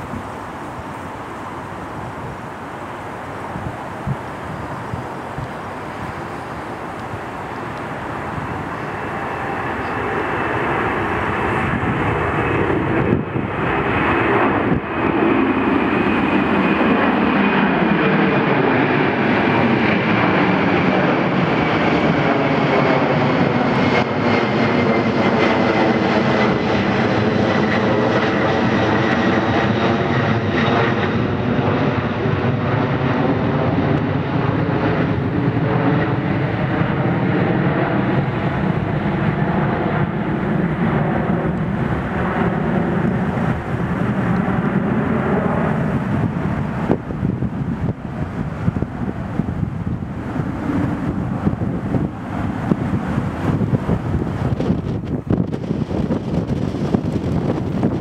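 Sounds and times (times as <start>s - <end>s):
jet airliner engines passing overhead: 0.0s - 58.0s.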